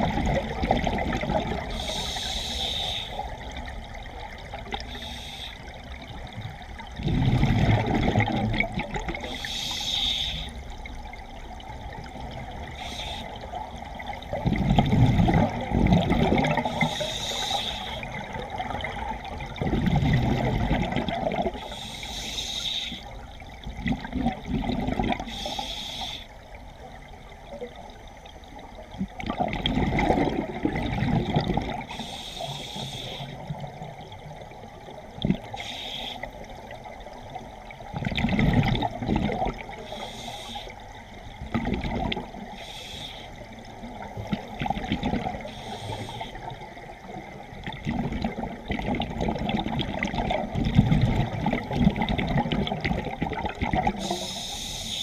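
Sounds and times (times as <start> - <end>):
exhaled bubbles gushing: 0.0 - 2.1, 5.9 - 9.4, 10.7 - 21.8, 23.6 - 25.5, 28.6 - 32.1, 33.3 - 35.6, 36.4 - 40.1, 40.9 - 42.6, 43.4 - 54.4
regulator hiss on inhale: 1.7 - 3.4, 4.8 - 5.9, 9.2 - 10.7, 12.6 - 13.6, 16.6 - 18.2, 21.6 - 23.2, 25.2 - 26.4, 31.9 - 33.4, 35.5 - 36.5, 39.8 - 41.0, 42.5 - 43.5, 45.4 - 46.6, 54.0 - 55.0.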